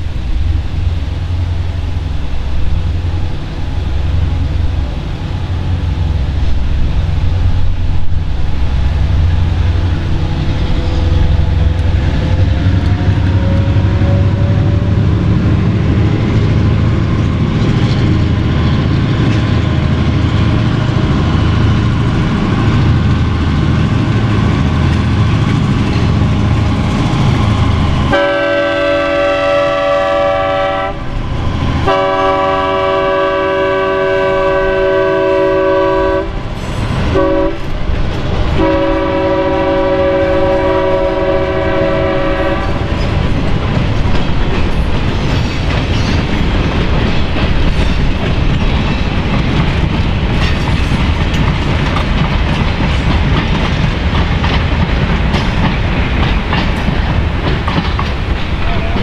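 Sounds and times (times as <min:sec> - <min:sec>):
diesel locomotive engines under load: 0:00.0 - 0:59.0
locomotive air horn blasts: 0:12.9 - 0:15.1, 0:28.1 - 0:31.1, 0:31.9 - 0:36.4, 0:37.1 - 0:37.7, 0:38.6 - 0:42.8.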